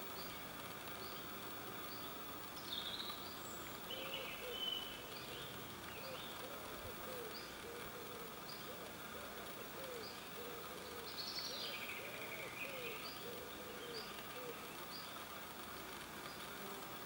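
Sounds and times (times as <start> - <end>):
low cooing bird notes: 3.9 - 15.2.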